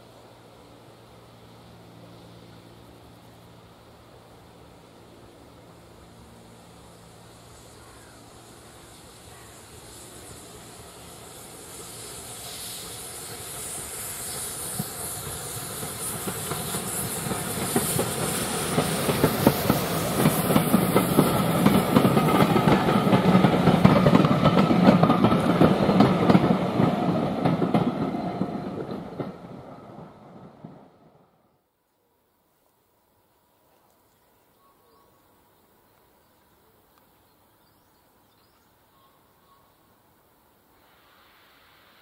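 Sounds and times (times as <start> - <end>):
steam hissing: 0.0 - 31.2, 40.6 - 42.0
train wheels clattering over rail joints: 13.5 - 29.5.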